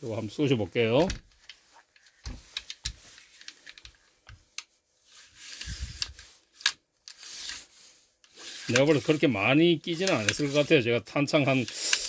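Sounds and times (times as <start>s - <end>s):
gun parts clicks and taps: 1.0s - 4.7s.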